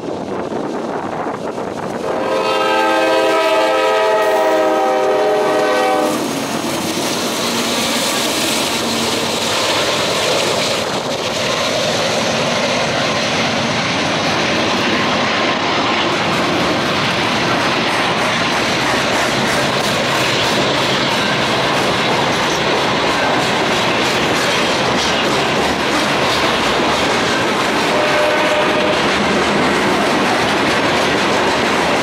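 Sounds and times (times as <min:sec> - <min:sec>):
freight cars rumbling on rails: 0:00.0 - 0:32.0
locomotive air horn chord: 0:02.0 - 0:06.3, 0:27.9 - 0:29.1.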